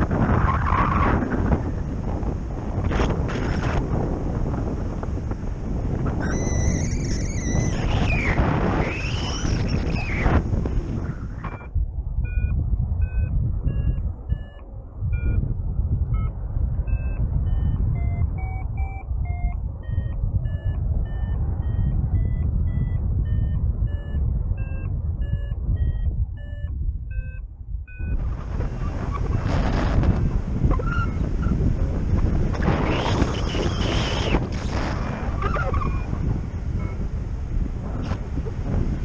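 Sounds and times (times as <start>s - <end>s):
wind on microphone: 0.0s - 39.0s
variometer beeping: 11.4s - 15.5s, 16.1s - 28.3s, 35.8s - 37.1s.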